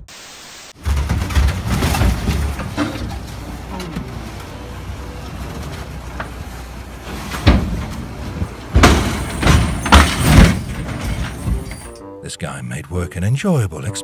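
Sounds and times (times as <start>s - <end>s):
heavy crash of steel and rock: 0.8s - 12.0s
truck low rumble: 0.8s - 12.2s.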